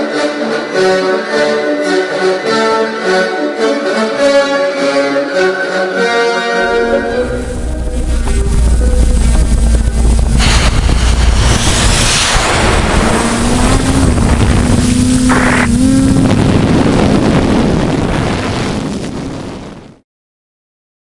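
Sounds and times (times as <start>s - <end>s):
drone motor hum: 6.8s - 17.4s
wind noise on microphone: 7.1s - 20.0s.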